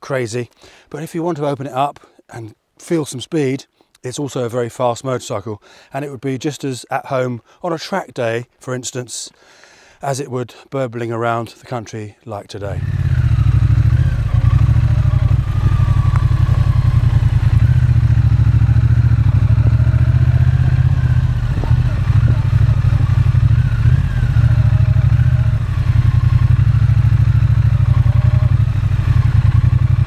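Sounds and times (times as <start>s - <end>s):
motorcycle engine burbling: 12.7s - 30.0s.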